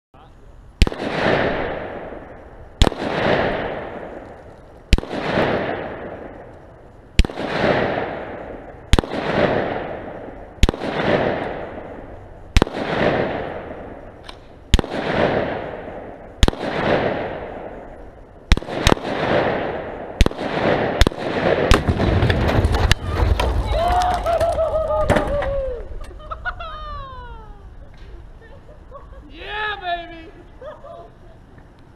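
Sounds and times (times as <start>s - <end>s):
rifle shots with rolling echo: 0.8s - 23.4s.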